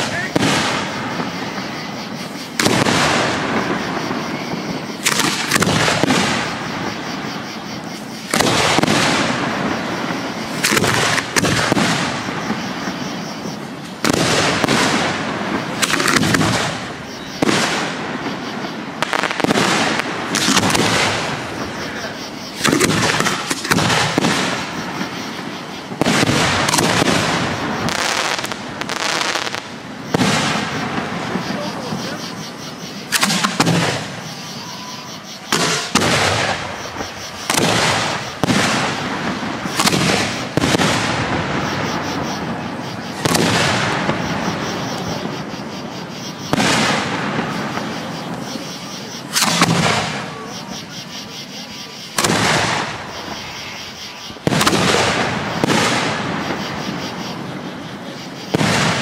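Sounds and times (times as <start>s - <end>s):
firework shells bursting: 0.0s - 7.0s, 8.2s - 21.9s, 22.5s - 31.5s, 33.0s - 34.3s, 35.5s - 45.4s, 49.2s - 50.4s.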